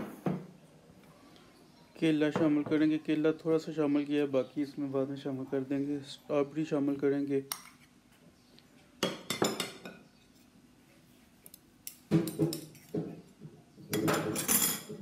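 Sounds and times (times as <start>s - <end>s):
spoon and crockery clinking: 9.0s - 10.0s, 11.8s - 13.0s, 13.9s - 15.0s.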